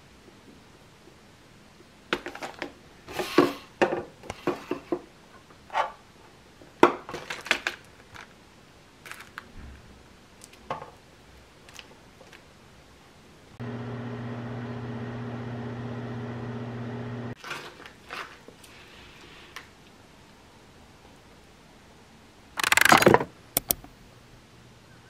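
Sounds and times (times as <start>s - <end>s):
plastic packaging crinkling: 9.0s - 9.5s.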